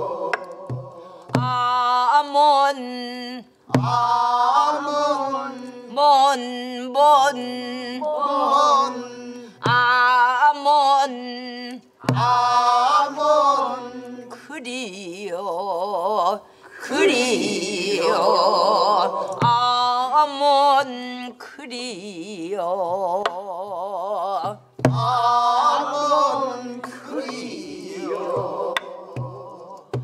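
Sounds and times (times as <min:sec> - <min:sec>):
woman singing folk song: 0:00.0 - 0:12.9, 0:14.0 - 0:17.3, 0:18.0 - 0:25.7.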